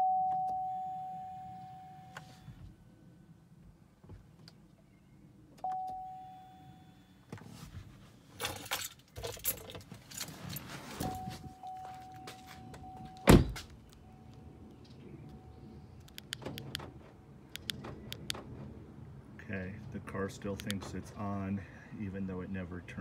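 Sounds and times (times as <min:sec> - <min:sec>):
car warning chime: 0:00.0 - 0:02.5, 0:05.6 - 0:07.3, 0:11.0 - 0:16.8
rustling: 0:07.4 - 0:13.8
keys jangling: 0:08.4 - 0:13.2
car door slamming shut: 0:13.2 - 0:13.7.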